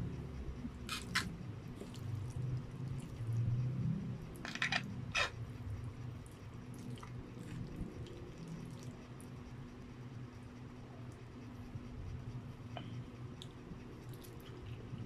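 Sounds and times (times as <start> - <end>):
person chewing: 0.9 - 3.2, 6.2 - 9.0.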